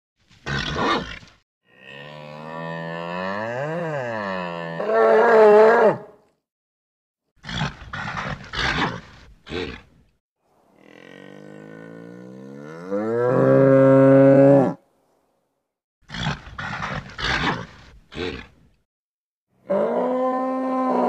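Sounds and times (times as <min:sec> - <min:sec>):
bull snorting: 0:07.4 - 0:09.9, 0:10.8 - 0:12.8, 0:16.1 - 0:18.6
bull bellowing: 0:10.7 - 0:14.8.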